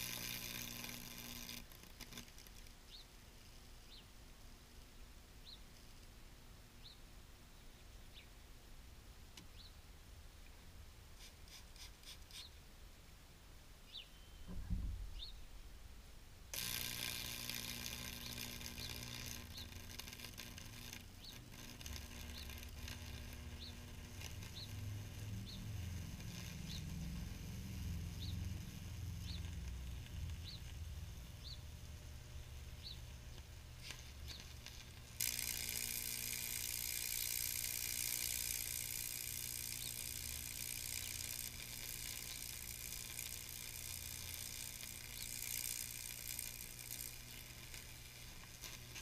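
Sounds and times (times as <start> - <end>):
crackle of arcing and burning wood: 0.0 - 3.9, 16.5 - 49.0
small bird chirping: 2.8 - 3.2, 3.8 - 4.2, 5.4 - 5.8, 6.8 - 8.4, 9.4 - 9.8, 11.2 - 12.6, 13.8 - 15.6, 17.9 - 48.0
transformer mains hum: 12.8 - 49.0
low thump: 14.5 - 15.2.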